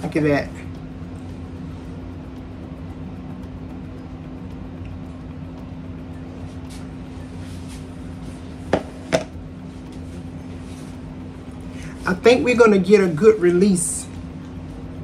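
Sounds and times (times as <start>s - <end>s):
steady low hum: 0.0s - 15.0s
metal pan knocking on countertop: 8.7s - 9.3s.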